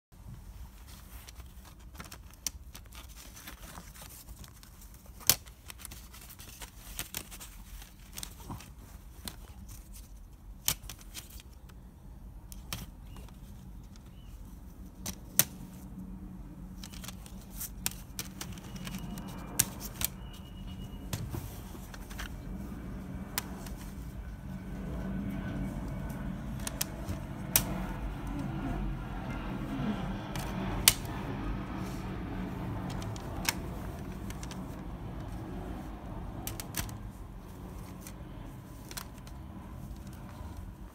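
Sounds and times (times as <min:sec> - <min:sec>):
low steady hum: 0:00.1 - 0:40.9
plastic cases clicking and clacking: 0:16.7 - 0:22.6.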